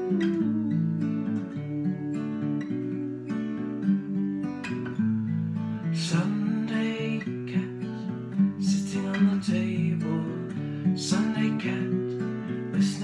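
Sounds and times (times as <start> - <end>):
strummed acoustic guitar: 0.0 - 13.0.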